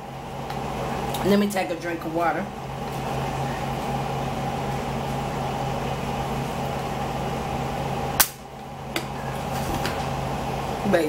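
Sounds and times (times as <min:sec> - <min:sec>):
mechanical room hum: 0:00.0 - 0:11.0.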